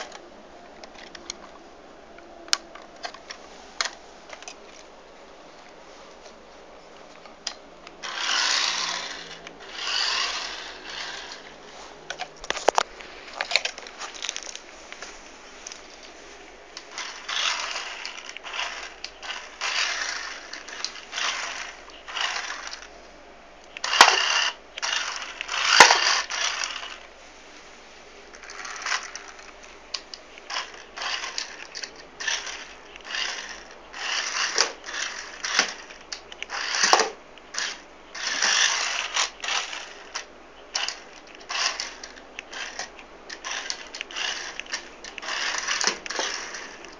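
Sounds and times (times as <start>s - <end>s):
rc car electric motor and gears: 8.0s - 11.6s, 16.8s - 22.9s, 23.8s - 27.0s, 28.3s - 29.5s, 30.4s - 46.9s.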